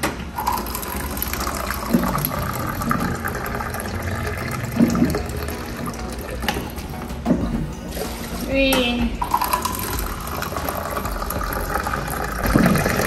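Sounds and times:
water running into plastic cup: 0:09.2 - 0:13.0.

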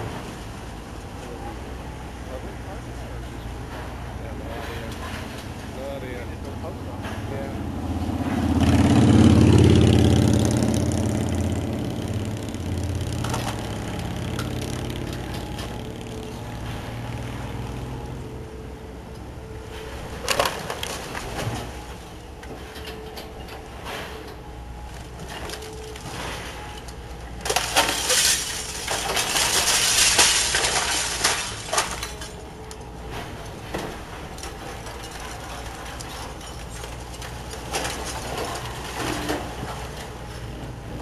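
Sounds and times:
excavator diesel engine running: 0:00.0 - 0:41.0
falling debris crashing: 0:12.7 - 0:17.6, 0:19.7 - 0:40.4.

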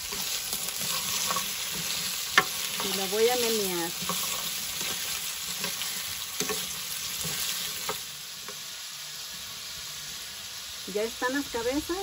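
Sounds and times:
vegetables sizzling in oil: 0:00.0 - 0:12.0
spoon scraping frying pan: 0:00.1 - 0:08.6.

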